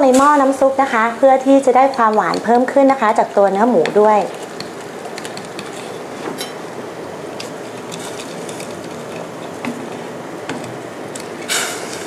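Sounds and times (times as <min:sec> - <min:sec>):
wire basket clicking on pot: 0:00.9 - 0:05.7.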